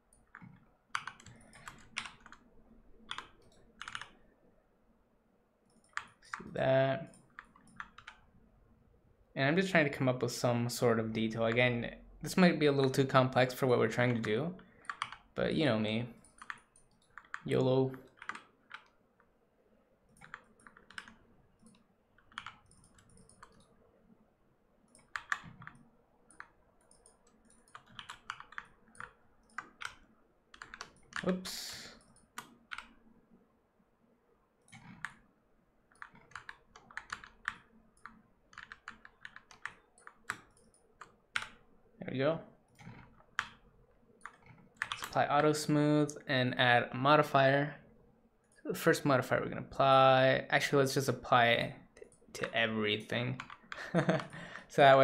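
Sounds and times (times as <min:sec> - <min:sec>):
keyboard keys clicking: 0:00.1 - 0:02.4, 0:03.1 - 0:04.2, 0:05.7 - 0:06.5, 0:07.1 - 0:08.2, 0:16.2 - 0:19.0, 0:20.1 - 0:23.8, 0:24.9 - 0:31.4, 0:32.0 - 0:33.0, 0:35.9 - 0:41.6, 0:44.2 - 0:45.2, 0:53.4 - 0:54.4.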